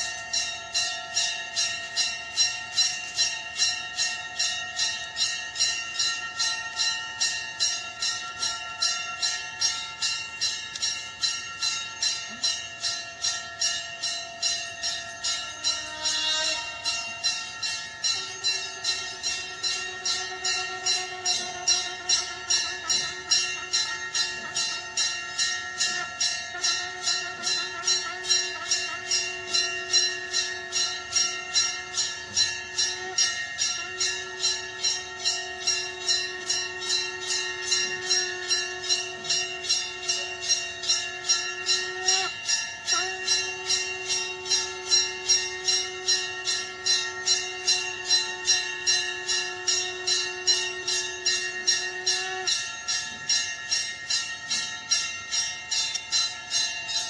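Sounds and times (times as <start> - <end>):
temple bell ringing: 0.0 - 57.0
conch shell blown: 15.2 - 53.0.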